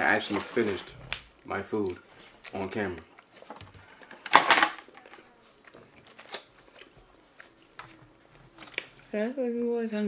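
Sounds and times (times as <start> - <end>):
chewing: 5.6 - 9.0.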